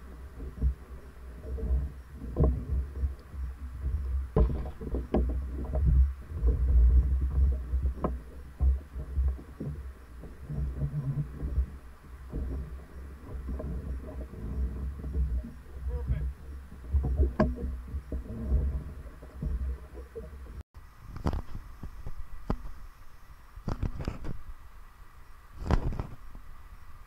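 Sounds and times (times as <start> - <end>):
water sloshing against hull: 0.0 - 20.6.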